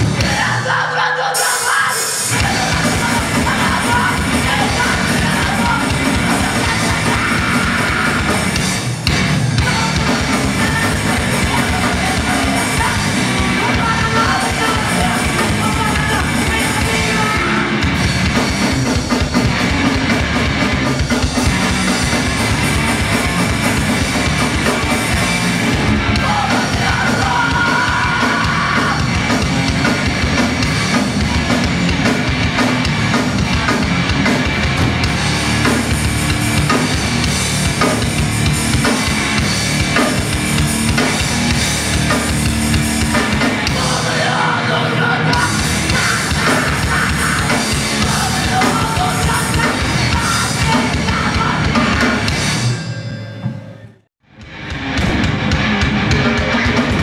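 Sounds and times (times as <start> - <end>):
punk band playing live: 0.0 - 57.0
vocalist yelling: 0.2 - 8.4, 26.2 - 29.1.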